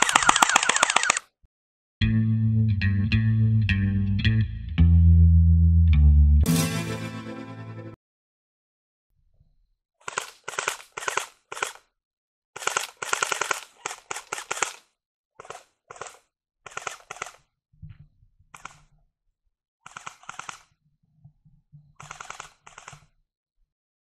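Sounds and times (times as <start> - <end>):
airsoft rifles firing bursts: 0.0 - 1.2, 10.1 - 11.8, 12.6 - 14.8.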